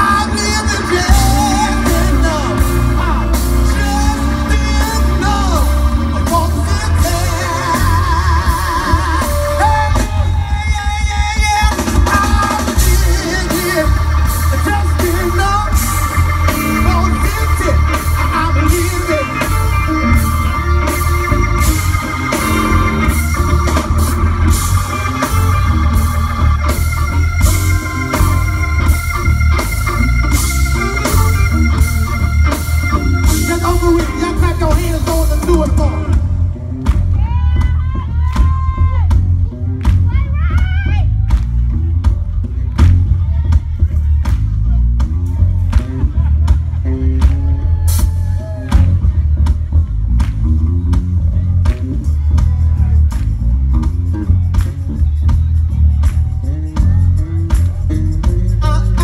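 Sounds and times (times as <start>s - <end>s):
drum kit: 0.0s - 59.0s
electric bass: 0.0s - 59.0s
funk soul band music: 0.0s - 59.0s
organ: 0.0s - 59.0s.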